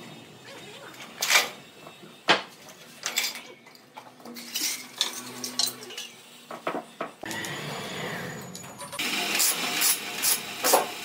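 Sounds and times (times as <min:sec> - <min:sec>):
steady machine noise: 0:04.9 - 0:11.0.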